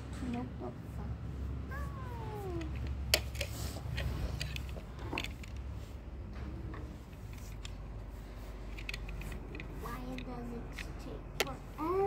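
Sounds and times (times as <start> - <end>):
paintbrush brushing on metal: 6.8 - 12.0.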